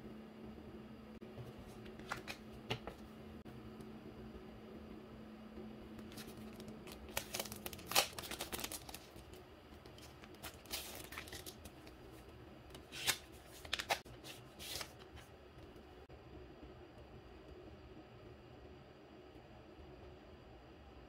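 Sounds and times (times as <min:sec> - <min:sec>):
paper sheets rustling: 0:06.1 - 0:09.3, 0:10.0 - 0:11.9, 0:12.8 - 0:15.3
plastic packaging crinkling: 0:06.1 - 0:09.4, 0:10.0 - 0:12.0, 0:12.8 - 0:15.0.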